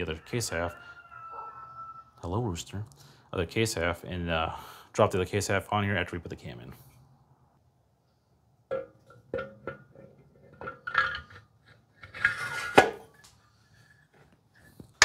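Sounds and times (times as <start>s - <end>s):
metal engine parts clinking: 8.7s - 12.8s.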